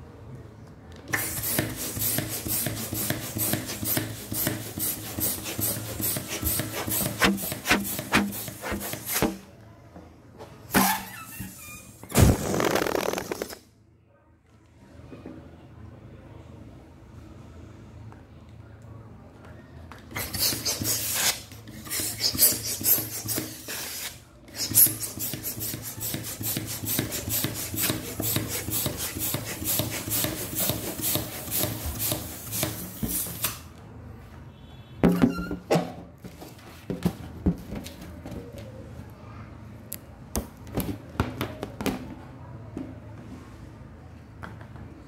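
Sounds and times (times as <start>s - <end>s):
balloon rubber handling: 1.2s - 9.5s, 10.7s - 13.6s
balloon squeak: 10.7s - 13.6s, 35.1s - 35.7s.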